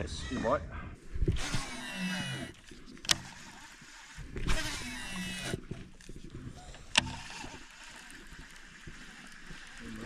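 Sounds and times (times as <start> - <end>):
reel click: 1.2 - 6.1, 6.7 - 9.8
fishing reel whirring: 1.2 - 10.0.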